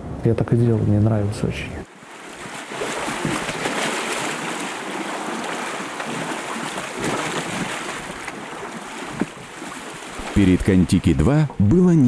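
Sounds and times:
sea water splashing in wake: 1.9s - 11.5s.

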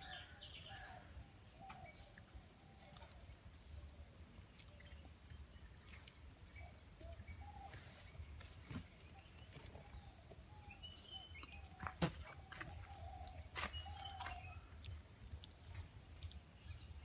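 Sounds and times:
faint bird calls: 0.0s - 15.0s.

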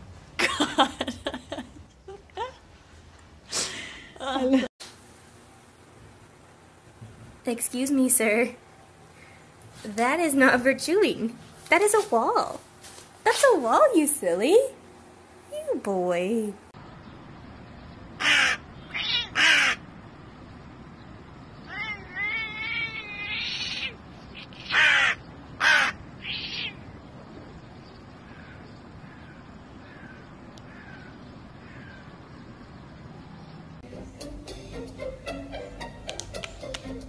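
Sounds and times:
harsh short animal calls: 18.2s - 19.8s, 21.7s - 26.9s
wavering animal call: 21.7s - 26.8s.

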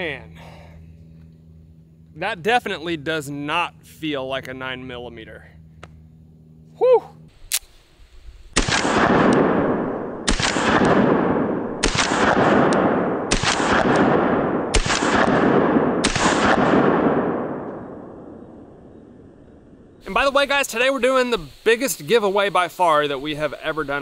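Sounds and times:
pistol shots with echo: 8.6s - 18.7s.

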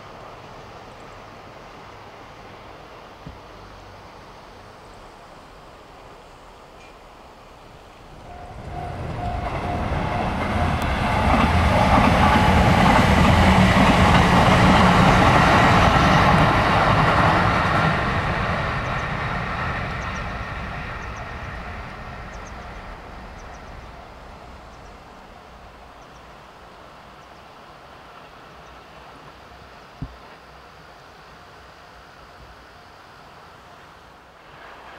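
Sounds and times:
electric train passing: 0.0s - 34.9s.

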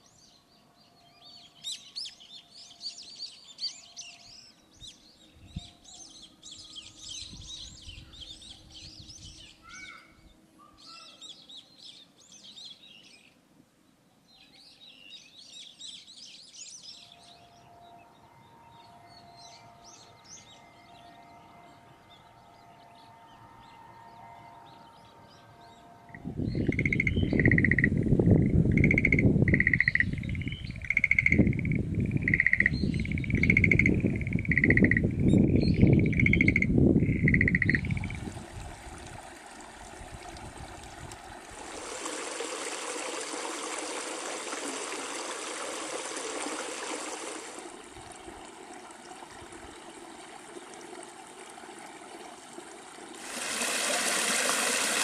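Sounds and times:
gusty low rumble: 26.2s - 39.2s
steady rushing hiss: 41.4s - 48.3s, 53.2s - 55.0s.

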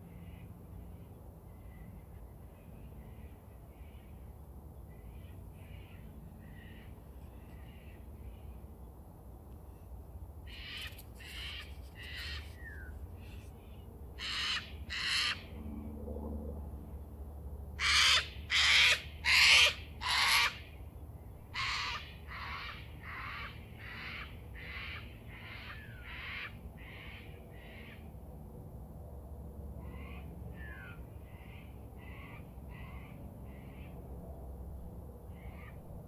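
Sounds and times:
steady low rumble: 11.3s - 20.0s
crow cawing: 14.2s - 15.4s, 17.8s - 20.6s, 21.6s - 27.8s.

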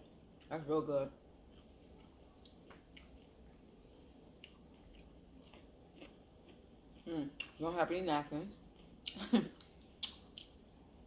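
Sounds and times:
faint chewing: 1.4s - 3.7s, 4.3s - 7.6s.

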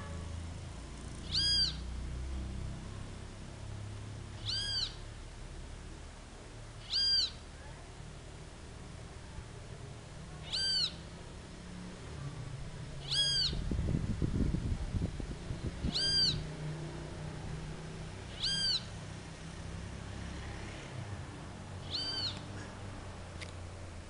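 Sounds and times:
low background rumble: 0.0s - 24.0s
bird calling: 1.2s - 1.8s, 4.4s - 5.0s, 6.8s - 7.4s, 10.4s - 11.0s, 13.0s - 13.6s, 15.9s - 16.5s, 18.3s - 19.0s, 21.8s - 22.7s.

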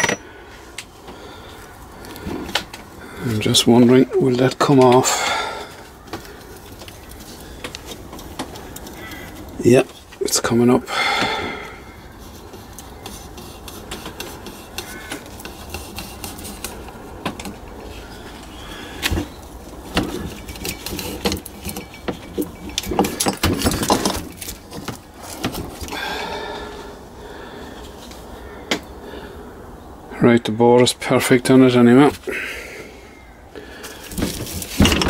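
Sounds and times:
metal clicks knocks and scrapes: 19.9s - 25.8s.

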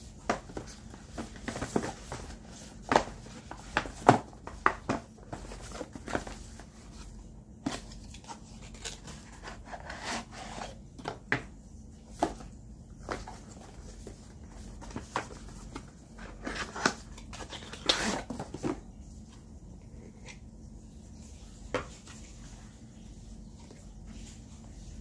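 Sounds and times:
cardboard box rustling: 0.3s - 11.4s, 12.1s - 18.9s.

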